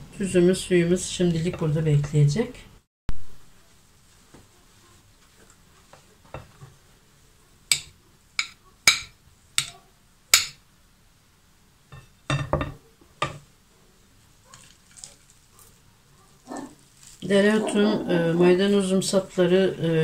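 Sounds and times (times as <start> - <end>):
knife clinking on porcelain plate: 7.7 - 9.7
cutting board knocking on plate: 12.0 - 13.4.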